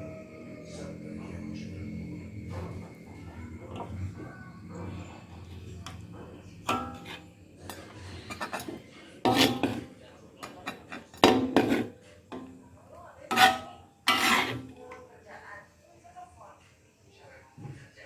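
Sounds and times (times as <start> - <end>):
metal spatula scraping wok: 6.7 - 12.5, 13.3 - 14.8.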